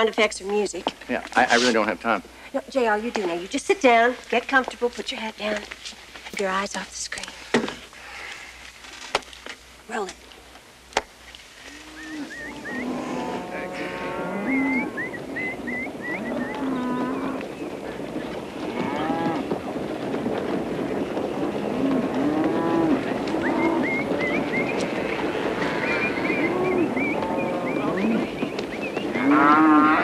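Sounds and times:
cattle mooing: 0:11.7 - 0:17.5, 0:18.6 - 0:19.5, 0:21.6 - 0:24.5, 0:25.5 - 0:28.2, 0:29.2 - 0:30.0.

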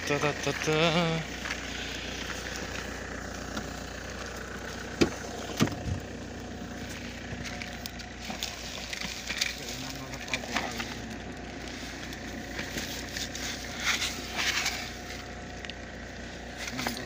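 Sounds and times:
steady low hum: 0:00.0 - 0:17.0
car door latch clicks: 0:05.0 - 0:06.0.

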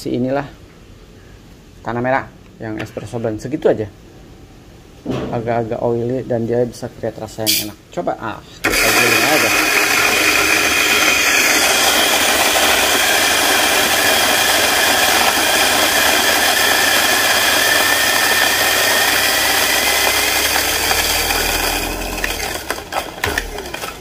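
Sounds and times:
coffee grinder motor whirring: 0:08.6 - 0:24.0.

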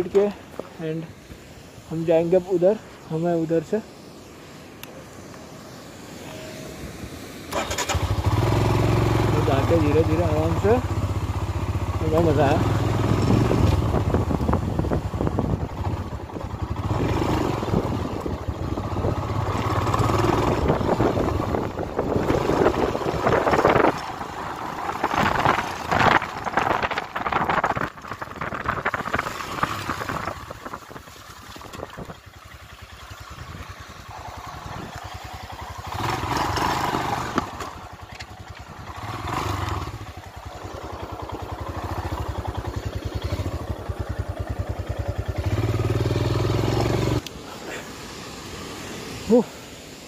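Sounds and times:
motorcycle engine running: 0:07.5 - 0:49.6
wind on microphone: 0:12.1 - 0:32.4, 0:33.0 - 0:40.4.

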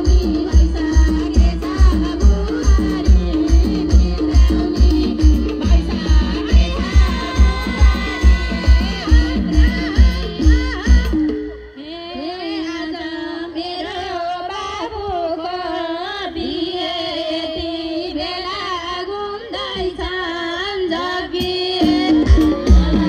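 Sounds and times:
drum beat: 0:00.0 - 0:11.4, 0:21.8 - 0:23.0
woman singing through loudspeakers: 0:00.0 - 0:23.0.

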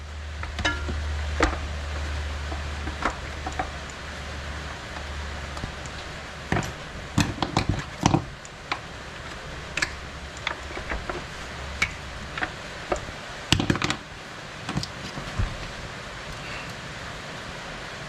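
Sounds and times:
tools and parts clicking and knocking: 0:00.4 - 0:04.0, 0:04.9 - 0:14.1.

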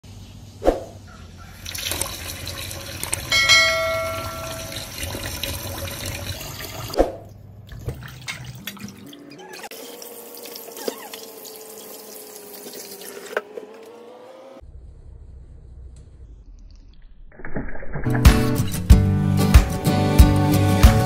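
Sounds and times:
bright chime: 0:03.3 - 0:04.9.

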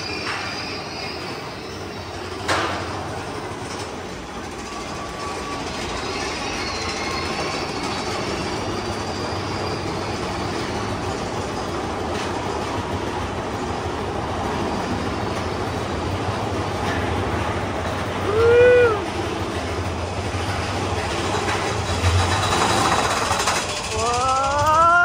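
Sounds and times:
roller coaster rattle and rumble: 0:00.0 - 0:25.0
squealing wheels: 0:00.0 - 0:25.0.

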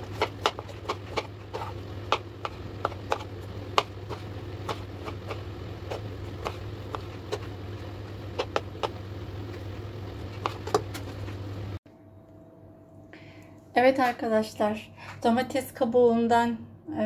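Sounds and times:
steady low hum: 0:00.0 - 0:17.0
knife tapping cutting board: 0:00.1 - 0:07.4, 0:08.3 - 0:09.0.

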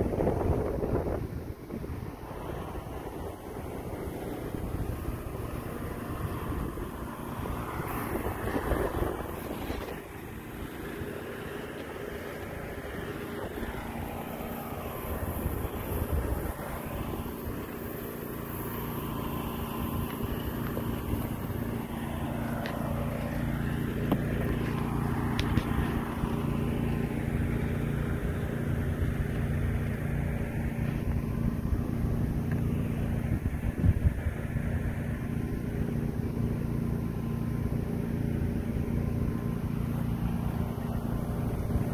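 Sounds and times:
motor humming steadily: 0:00.0 - 0:41.9
microphone rumble and rustle: 0:04.4 - 0:12.7, 0:19.3 - 0:34.6.

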